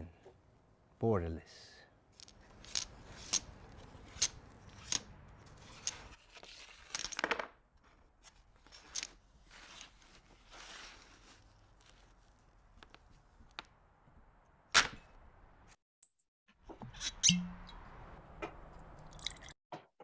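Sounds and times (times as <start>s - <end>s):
domino tiles clacking: 2.2s - 6.2s.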